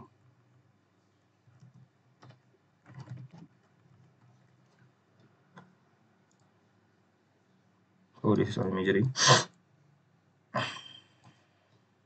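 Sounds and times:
faint keyboard keystrokes: 0:01.5 - 0:06.5.

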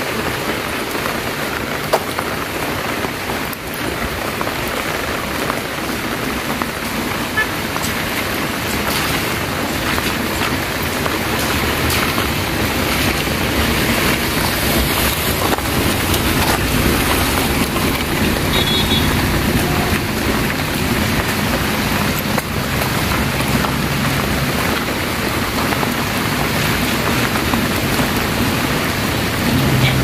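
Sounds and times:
rain and wind on microphone: 0:00.0 - 0:30.0
car driving past on wet road: 0:07.8 - 0:30.0.

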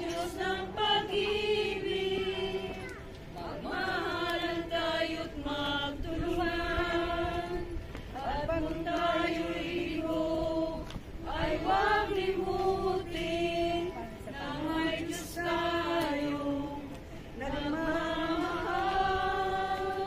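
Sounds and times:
group singing slowly: 0:00.0 - 0:20.0.

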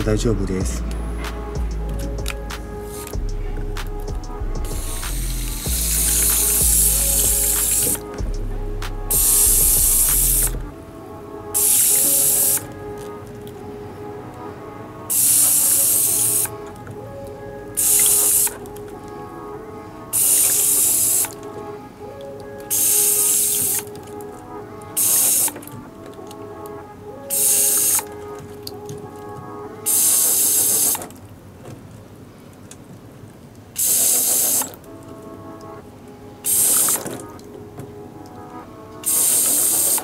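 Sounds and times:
soft background music: 0:00.0 - 0:40.0
spray bottle hissing spurts: 0:04.7 - 0:08.1, 0:27.3 - 0:28.0, 0:36.4 - 0:37.1.

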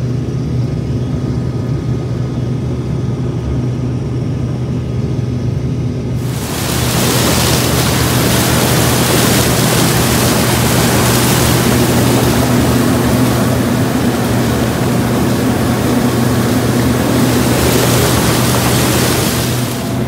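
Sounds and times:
combine harvester engine droning: 0:00.0 - 0:20.0.

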